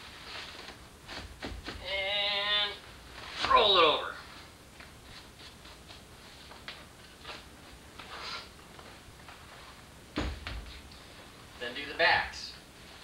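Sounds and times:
thump: 10.2s - 10.7s.

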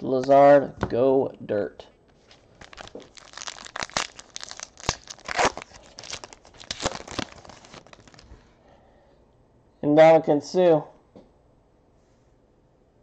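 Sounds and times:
plastic wrapper crinkling and tearing: 2.2s - 8.3s.

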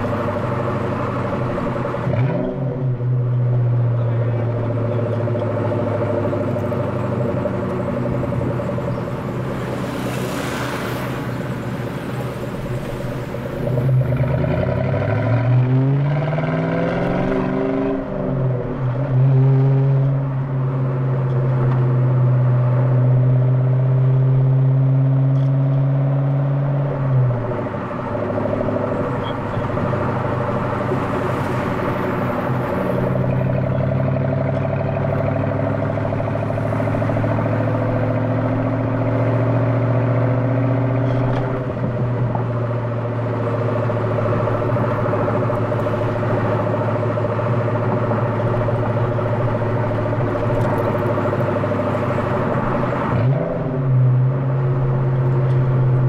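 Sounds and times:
car engine revving: 0.0s - 56.0s.

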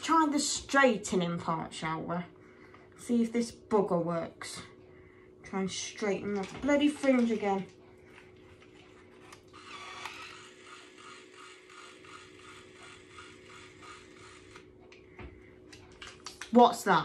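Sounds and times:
hair styler motor ticking: 9.2s - 15.0s.

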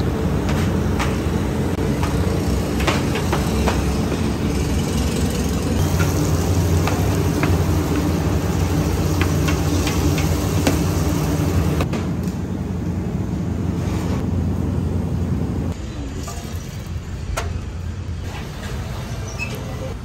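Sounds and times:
stove rumbling: 0.0s - 20.0s
oil sizzling in a pan: 5.8s - 11.8s.

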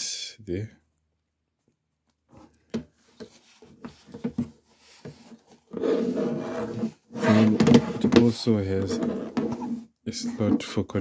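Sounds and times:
cable handling knocks and clicks: 1.6s - 5.3s.

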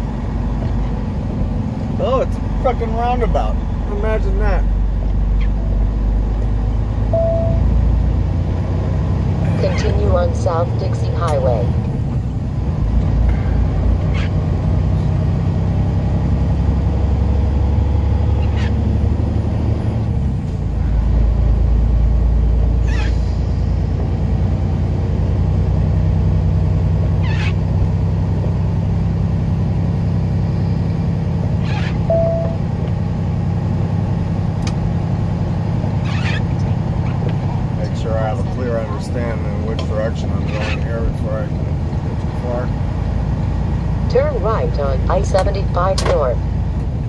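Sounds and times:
diesel truck engine drone: 0.0s - 47.0s
brief beep: 7.1s - 7.7s, 32.1s - 32.6s.

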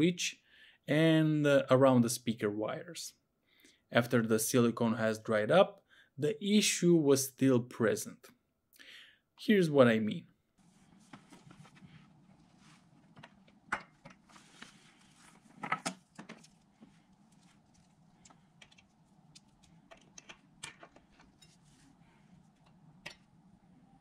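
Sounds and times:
faint hum: 16.5s - 24.0s
cables clicking and knocking: 17.7s - 21.5s.

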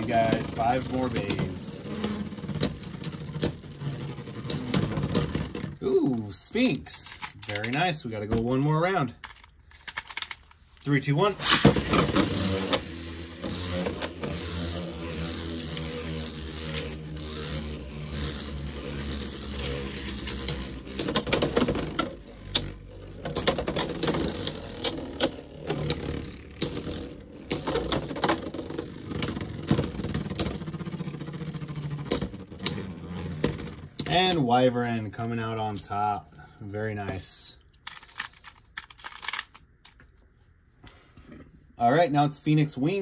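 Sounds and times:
spinning tops whirring: 0.0s - 6.4s, 11.0s - 34.5s
spinning tops clacking: 11.4s - 34.4s.

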